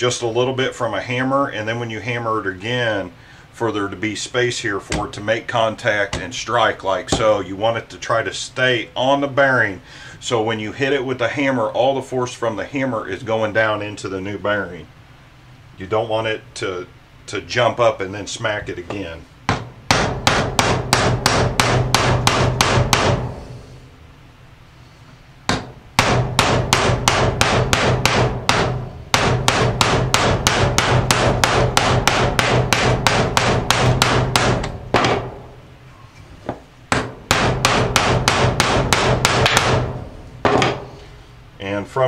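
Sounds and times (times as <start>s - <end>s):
hammer striking metal: 19.5s - 23.5s, 25.5s - 35.5s, 36.9s - 41.0s.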